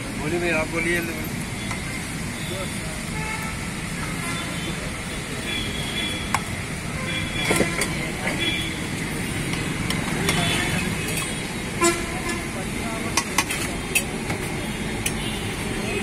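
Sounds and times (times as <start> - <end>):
background chatter: 0.0 - 16.0
traffic rumble: 0.0 - 16.0.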